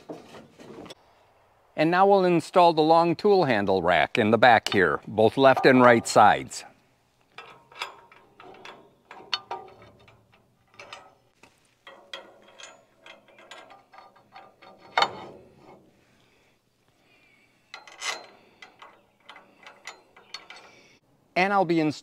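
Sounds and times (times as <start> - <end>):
metal parts clanking and rattling: 4.5 - 6.6, 7.2 - 15.9, 17.7 - 21.0.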